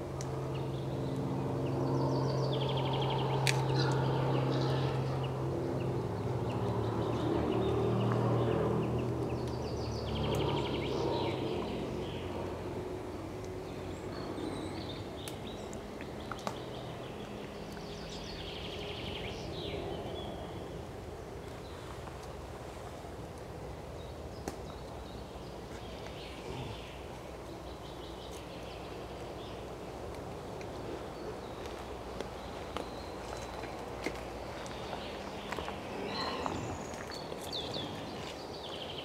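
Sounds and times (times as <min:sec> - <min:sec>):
wild boar grunting: 0:26.3 - 0:27.3, 0:36.0 - 0:37.0.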